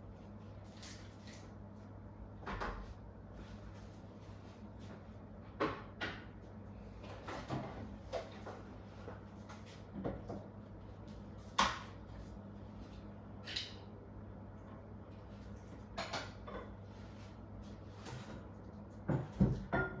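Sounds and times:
cupboard doors knocking and clicking: 19.1s - 20.0s.

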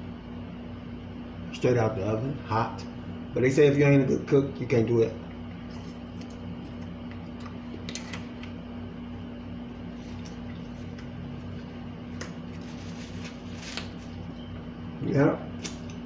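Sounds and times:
appliance electrical hum: 0.0s - 16.0s
paper napkin rustling and clicks: 12.1s - 14.2s.

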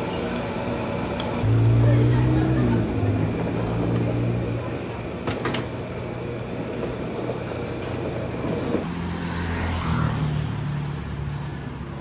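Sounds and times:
vehicle engine humming: 0.0s - 9.1s.

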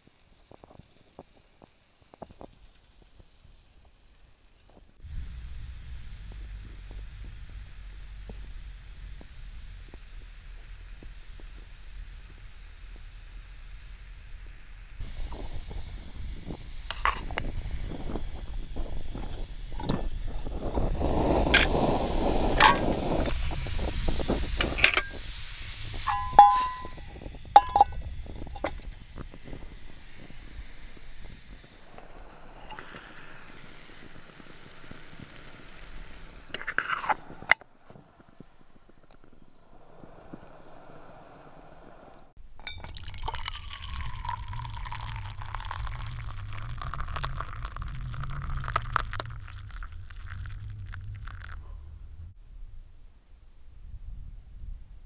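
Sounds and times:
liquid pouring into mug: 16.4s - 20.1s, 26.0s - 27.0s, 42.6s - 51.8s
metal cookware clinking: 24.6s - 25.2s, 26.1s - 27.0s, 27.6s - 28.0s.

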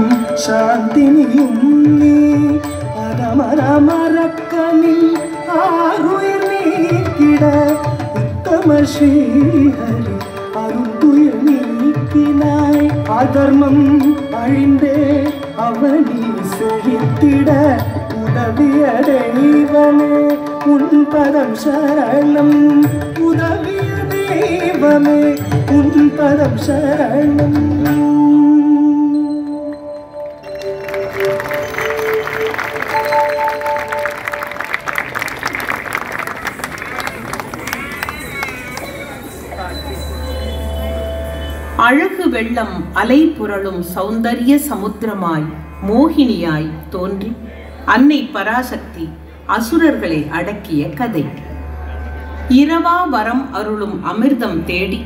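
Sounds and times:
melodic line with held notes: 0.0s - 35.0s.

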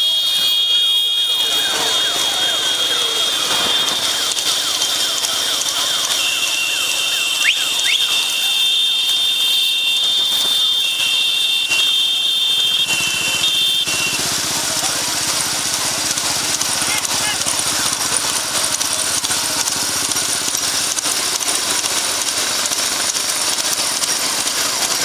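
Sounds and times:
high-pitched whistle blasts: 0.0s - 15.0s
crowd noise: 0.0s - 25.0s
engine running: 0.0s - 25.0s.

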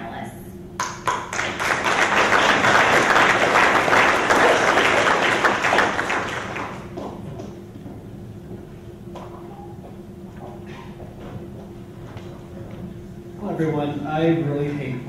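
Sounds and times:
audience applauding: 0.8s - 7.2s.

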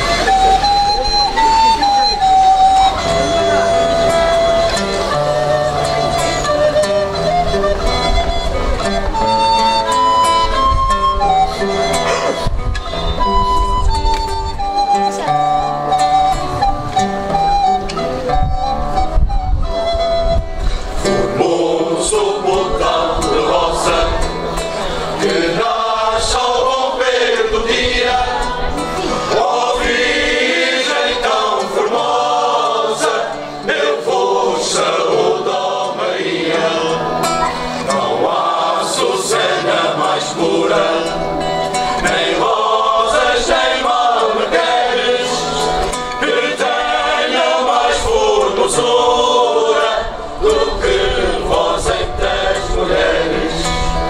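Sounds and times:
guitar: 0.0s - 54.0s
choir singing in unison: 21.0s - 54.0s.

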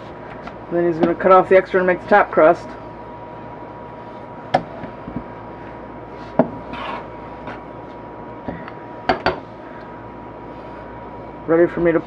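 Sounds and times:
faint high hum: 0.0s - 12.0s
rolling pin scraping: 5.6s - 7.7s.

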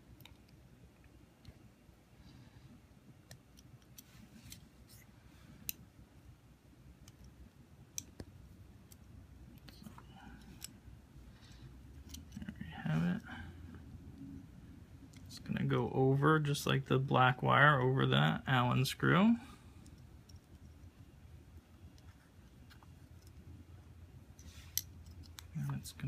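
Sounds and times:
wire threading clicks and taps: 7.0s - 9.8s.

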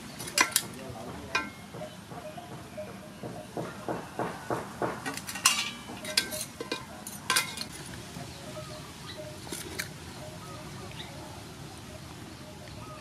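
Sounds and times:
tongs clinking on metal pot: 0.2s - 1.7s, 5.1s - 7.8s.

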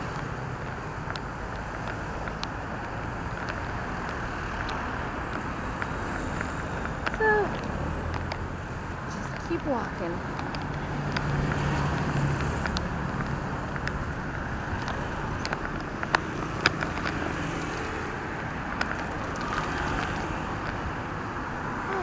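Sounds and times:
passing vehicle engine hum: 0.0s - 22.0s
road traffic passing: 0.0s - 22.0s.

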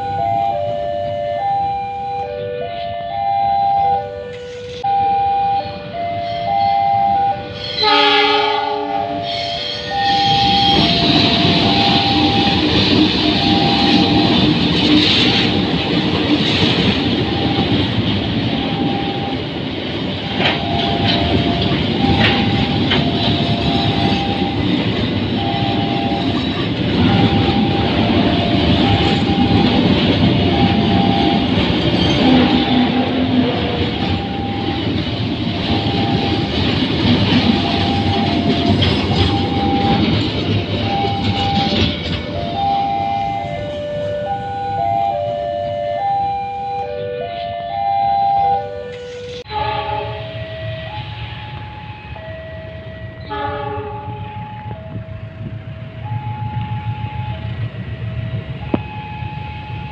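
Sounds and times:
locomotive horn: 0.0s - 15.7s, 20.2s - 24.7s, 25.3s - 34.9s, 35.5s - 40.2s, 40.8s - 51.2s, 53.1s - 54.8s
crossing alarm two-tone chime: 0.0s - 59.9s
train rumble and wheel clatter: 0.0s - 59.9s.

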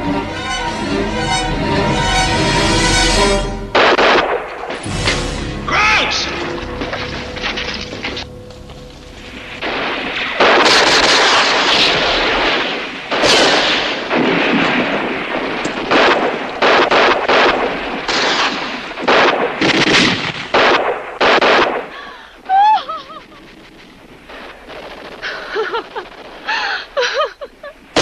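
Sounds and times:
small-arms gunfire: 3.8s - 4.8s, 9.7s - 22.2s.

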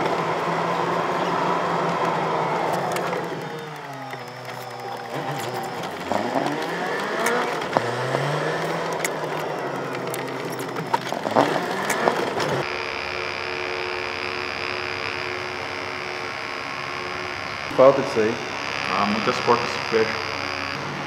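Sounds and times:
car engine from inside cabin: 0.0s - 18.0s
sharp clicks: 1.9s - 12.7s
tattoo machine buzzing: 12.6s - 21.0s.

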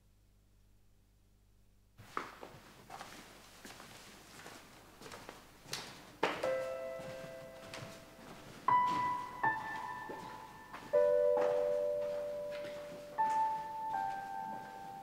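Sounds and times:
slow sparse piano music: 6.4s - 15.0s.

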